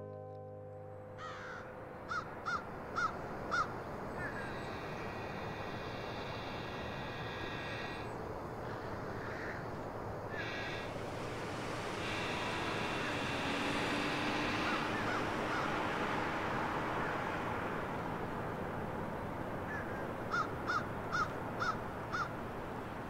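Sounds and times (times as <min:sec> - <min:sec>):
vehicle passing: 0:00.9 - 0:23.0
crow cawing: 0:01.2 - 0:09.7, 0:10.3 - 0:10.9, 0:14.3 - 0:15.8, 0:17.0 - 0:17.2, 0:19.6 - 0:22.4.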